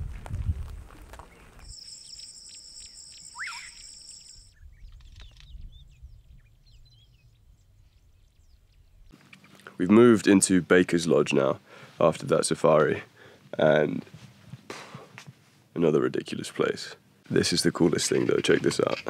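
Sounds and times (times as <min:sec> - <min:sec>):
faint bird calls: 0:01.3 - 0:04.4
rising bird chirp: 0:01.3 - 0:09.5
insect trilling: 0:01.6 - 0:04.5.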